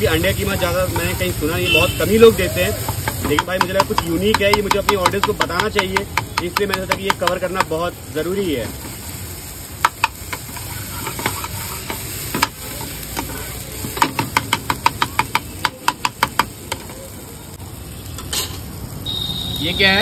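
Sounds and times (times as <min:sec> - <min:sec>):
food sizzling: 0:00.0 - 0:20.0
spatula tapping and scraping pan: 0:00.3 - 0:01.9, 0:02.8 - 0:07.8, 0:09.8 - 0:17.0.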